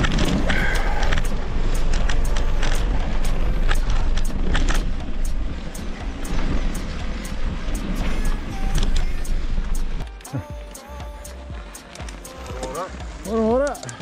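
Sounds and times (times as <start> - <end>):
bike rattling over bumps: 0.0 - 8.0.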